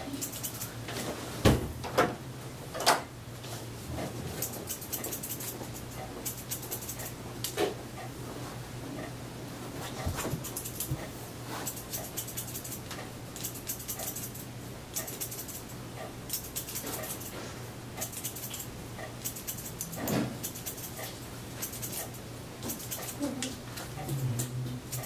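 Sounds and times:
scissors snipping hair: 0.0 - 0.7, 4.4 - 7.6, 10.4 - 17.4, 18.0 - 25.0.

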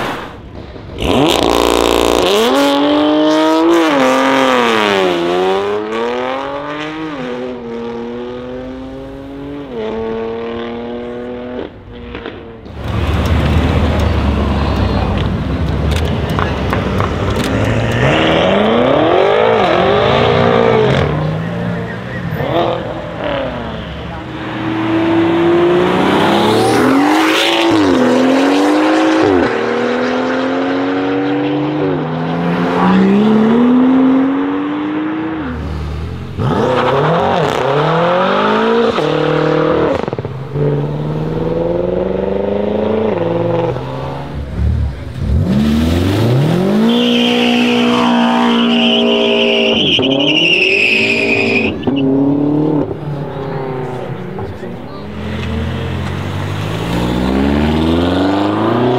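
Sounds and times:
car engines accelerating hard: 0.0 - 58.9
tyre squeal: 46.8 - 52.2.

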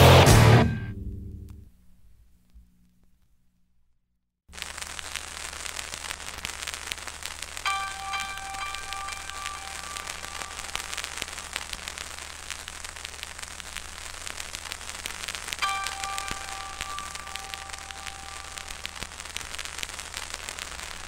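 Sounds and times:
crackling static: 1.4 - 21.0
held multi-pitch tone: 7.6 - 12.1, 15.5 - 19.6.

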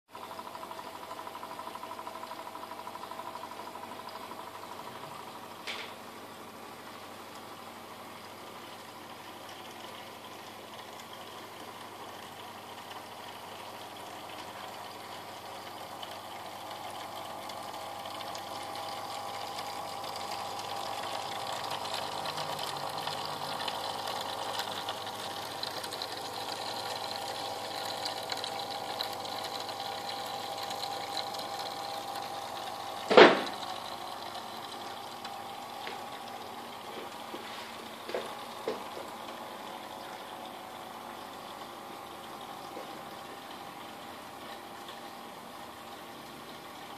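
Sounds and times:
trickling water: 0.2 - 46.9
small electric pump: 13.8 - 39.1
sharp knock: 33.1 - 33.6.

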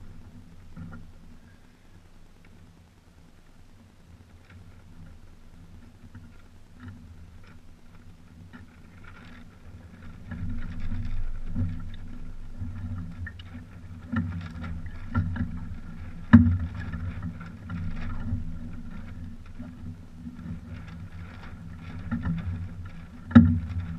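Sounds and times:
water washing against hulls: 5.0 - 23.9.

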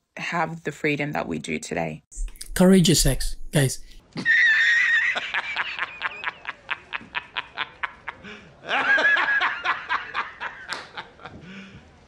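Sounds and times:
man laughing: 4.2 - 11.4.

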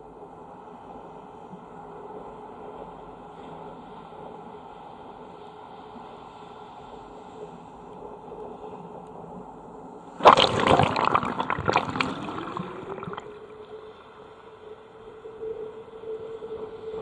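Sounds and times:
wave washing over microphone: 10.2 - 14.4.

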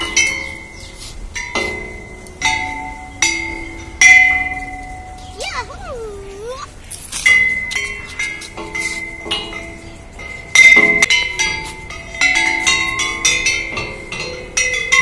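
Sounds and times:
metal pipes struck ringing: 1.4 - 5.3.

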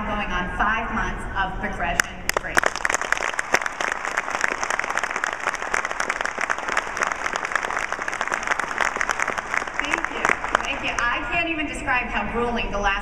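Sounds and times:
audience applause: 2.3 - 11.3.

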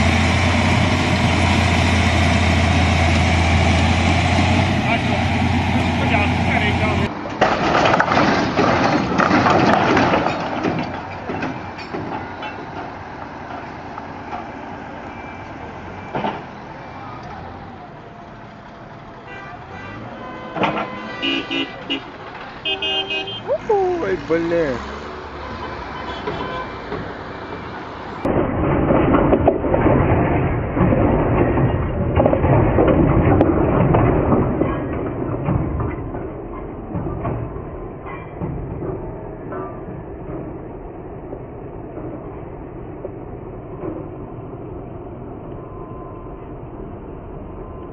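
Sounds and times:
heavy crash and scraping: 3.9 - 16.7, 19.6 - 23.0, 24.0 - 40.8.

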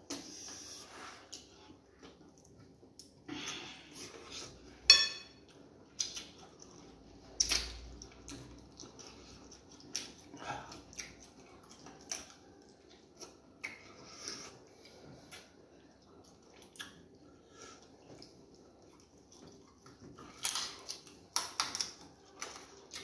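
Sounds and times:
wet eating squelches: 5.4 - 23.0.

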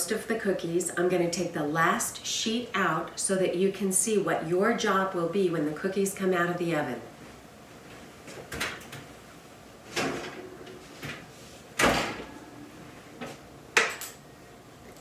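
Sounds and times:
oven door shutting thud: 11.8 - 12.4.

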